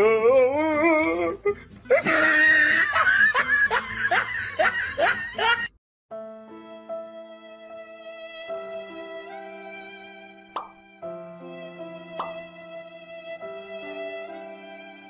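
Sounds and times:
person laughing hard: 1.9 - 5.7
soft music with held notes: 6.1 - 15.0.

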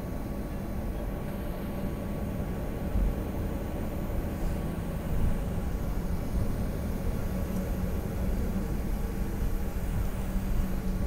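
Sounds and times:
airliner taxiing rumble: 0.0 - 11.0
faint steady hum: 0.0 - 11.0
jet engines idling: 0.0 - 11.0.

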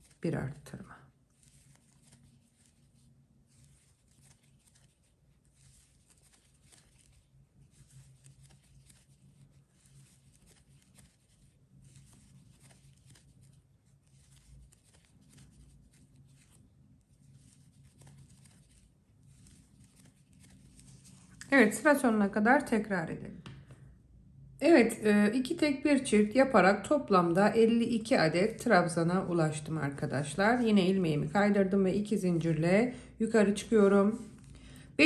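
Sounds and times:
crochet hook rustling yarn: 0.0 - 22.3, 33.3 - 34.5.

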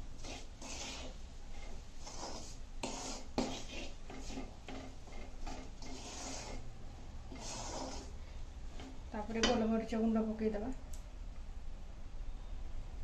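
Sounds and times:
spatula scraping a pan: 0.0 - 6.7, 7.3 - 9.0.

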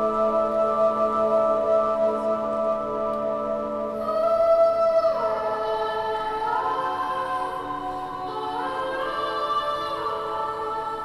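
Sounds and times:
choir singing held chords: 0.0 - 11.0.

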